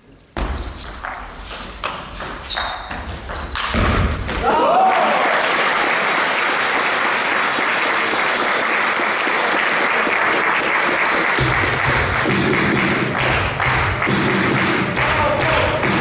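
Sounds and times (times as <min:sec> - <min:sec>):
crowd applauding: 0:04.4 - 0:16.0.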